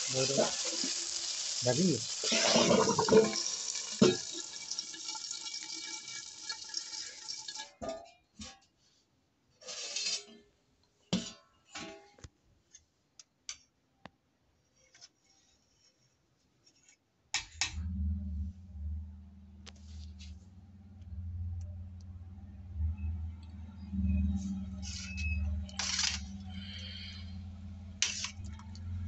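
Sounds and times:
dense hiss: 0:00.0 - 0:04.4
low steady hum: 0:17.7 - 0:29.0.

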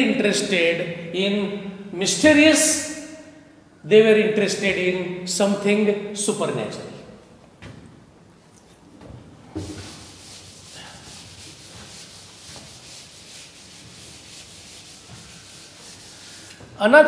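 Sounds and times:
knock: 0:09.6 - 0:09.9
duster scrubbing a blackboard: 0:09.6 - 0:16.7.

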